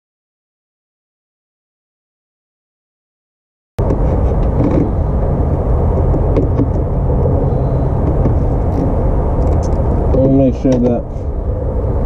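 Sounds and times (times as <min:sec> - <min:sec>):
loud low rumble: 0:03.8 - 0:12.0.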